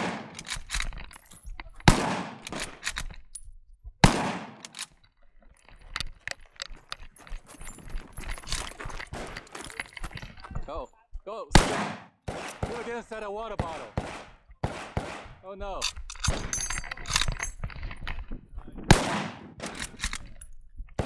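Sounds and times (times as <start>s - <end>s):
rifle shots echoing: 0.0s - 0.6s, 1.8s - 2.8s, 4.0s - 4.8s, 11.5s - 15.4s, 18.9s - 19.9s
rifle bolt clicking and clattering: 0.0s - 3.5s, 4.4s - 10.3s, 15.8s - 18.3s, 19.6s - 20.6s.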